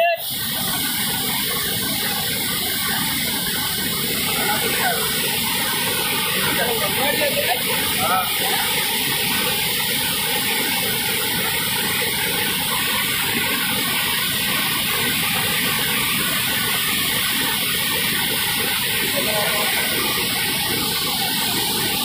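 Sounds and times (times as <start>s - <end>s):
water rushing over a spillway: 0.0s - 22.0s.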